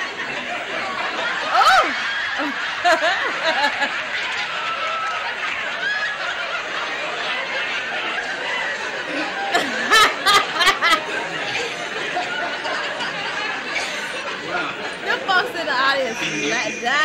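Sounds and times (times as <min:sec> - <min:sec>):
studio audience laughing: 0:00.0 - 0:17.0
woman laughing loudly: 0:01.4 - 0:03.9, 0:09.2 - 0:11.0.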